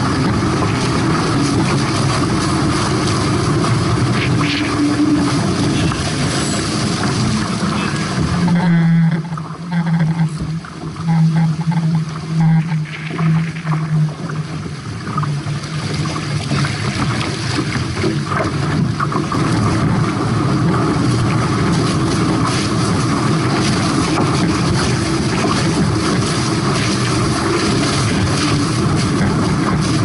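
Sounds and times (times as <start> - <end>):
hull rushing through water: 0.0 - 30.0
wind buffeting microphone: 14.1 - 30.0.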